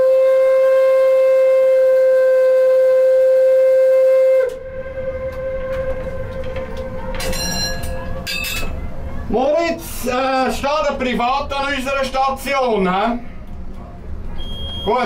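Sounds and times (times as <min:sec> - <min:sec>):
steam whistle blast: 0:00.0 - 0:08.2
low background rumble: 0:04.6 - 0:14.8.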